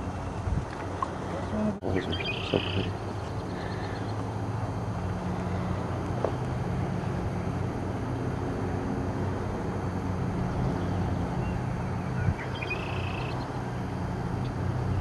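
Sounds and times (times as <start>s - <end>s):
faint hum: 0.0s - 15.0s
low outdoor rumble: 0.0s - 15.0s
bird chirping: 1.8s - 4.2s, 10.8s - 13.6s.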